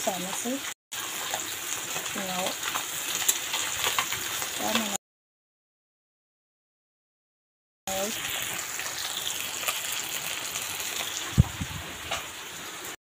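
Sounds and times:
fish sizzling in hot oil: 0.0 - 5.0, 7.9 - 13.0.

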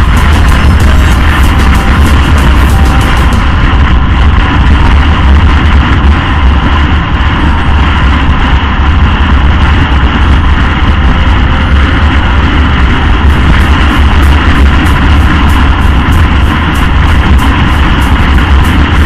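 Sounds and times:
motorcycle engine: 0.0 - 4.4, 12.5 - 19.0
road noise: 0.0 - 19.0
wind buffeting microphone: 0.0 - 19.0.

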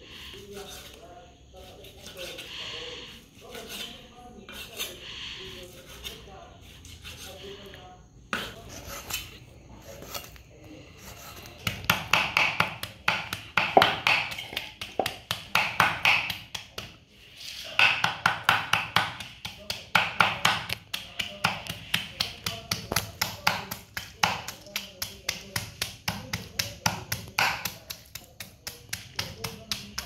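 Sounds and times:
cleaver chopping on wooden block: 11.7 - 16.6.

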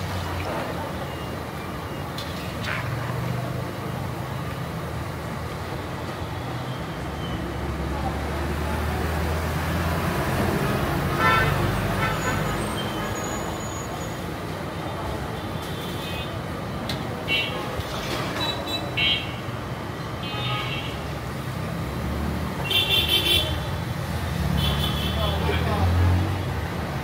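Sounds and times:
street traffic: 0.0 - 27.0
vehicle horn: 11.2 - 12.5.

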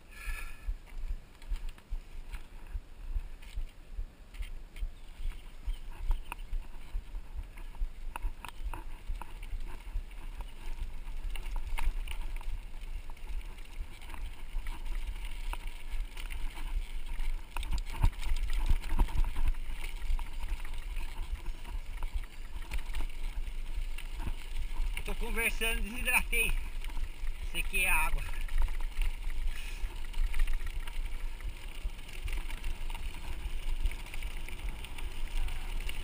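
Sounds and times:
bike tyre rumble on gravel: 0.0 - 36.0
bike rattling over bumps: 4.3 - 36.0.

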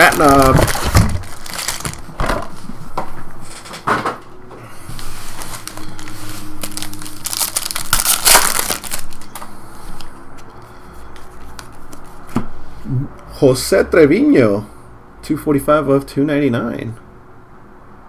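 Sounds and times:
wrapper crinkling and tearing: 0.0 - 2.6, 4.9 - 10.1.

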